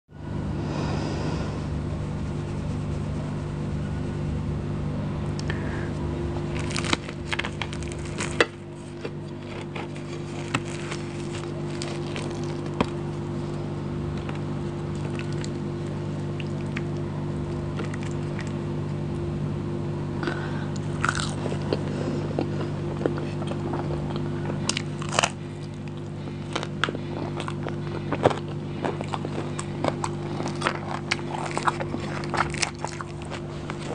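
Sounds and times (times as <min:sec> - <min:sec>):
low hum: 0:00.1 - 0:33.9
person chewing and crunching food: 0:06.4 - 0:18.6, 0:20.2 - 0:33.9.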